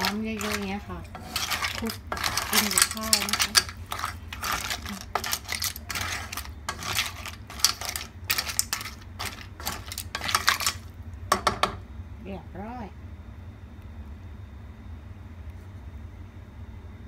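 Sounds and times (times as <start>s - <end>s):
clam shells rattling in metal pot: 0.0s - 11.8s.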